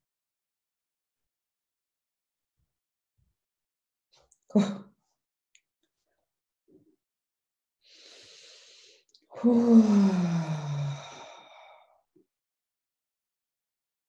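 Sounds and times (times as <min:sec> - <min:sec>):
woman breathing in softly: 0:07.9 - 0:09.0
woman sighing: 0:09.4 - 0:11.5.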